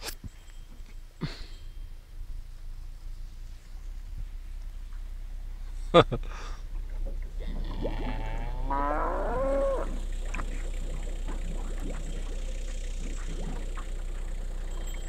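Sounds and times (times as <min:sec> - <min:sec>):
cow mooing: 0:07.4 - 0:10.6.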